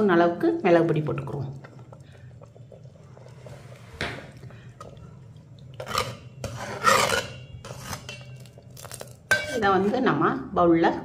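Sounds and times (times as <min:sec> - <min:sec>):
spoon scraping metal pot: 0:05.6 - 0:10.1.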